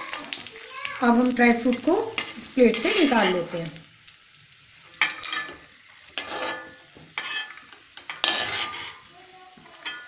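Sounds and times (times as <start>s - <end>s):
faint ghee sizzle: 0.0s - 10.0s
metal spatula scraping metal pan: 1.6s - 3.5s, 5.0s - 9.1s, 9.8s - 10.0s.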